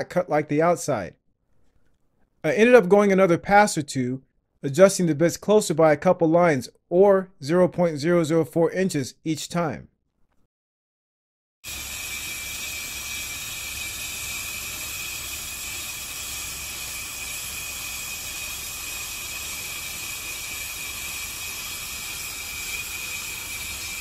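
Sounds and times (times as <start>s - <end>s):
brake lathe hissing: 11.6s - 24.0s.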